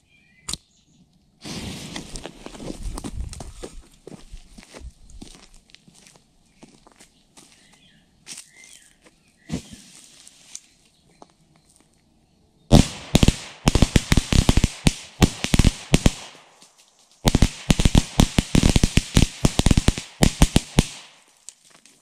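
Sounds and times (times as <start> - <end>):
firework hiss: 1.4 - 2.2
firecracker bangs: 12.7 - 16.4, 17.2 - 21.2.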